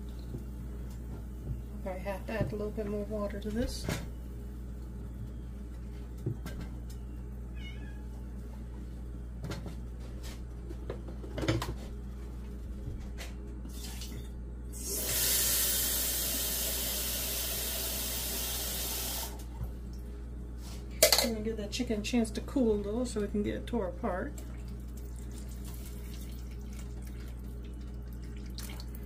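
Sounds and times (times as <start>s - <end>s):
steady low hum: 0.0s - 15.0s, 19.3s - 29.0s
water pouring into a pot: 24.4s - 29.0s.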